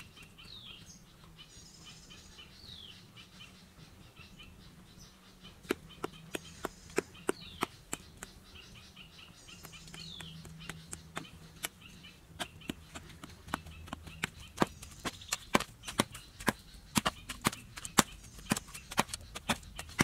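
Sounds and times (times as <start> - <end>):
hoes chopping into hard soil: 12.4 - 20.0.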